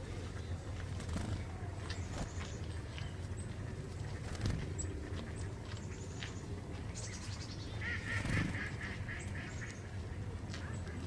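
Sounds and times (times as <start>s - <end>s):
birds chirping: 0.0s - 11.0s
rapid honking bird calls: 7.8s - 9.8s.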